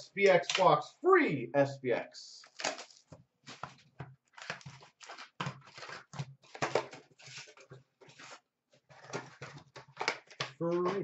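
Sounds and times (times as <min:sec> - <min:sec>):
card packaging tearing and rustling: 0:02.4 - 0:11.0.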